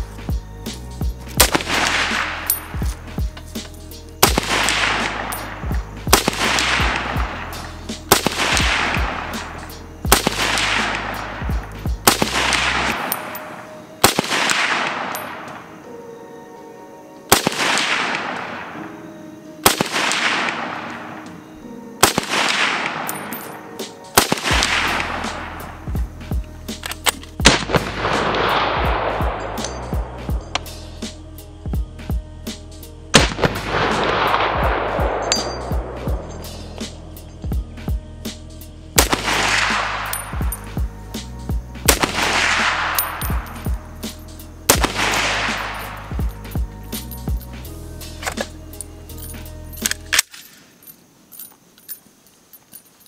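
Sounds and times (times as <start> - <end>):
rifle shots echoing: 1.4 - 3.0, 4.2 - 15.6, 17.3 - 18.8, 19.6 - 21.2, 22.0 - 25.8, 27.1 - 29.8, 33.2 - 35.9, 39.0 - 40.6, 41.9 - 43.8, 44.7 - 46.4.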